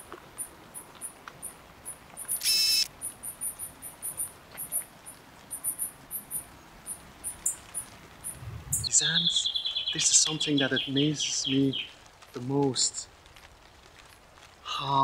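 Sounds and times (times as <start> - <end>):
high-pitched insect chirping: 5.5 - 7.6.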